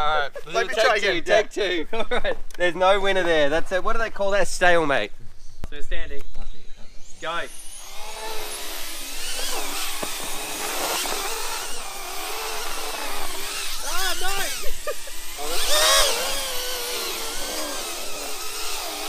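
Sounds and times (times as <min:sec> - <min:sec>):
micro drones buzzing: 0:05.5 - 0:19.0.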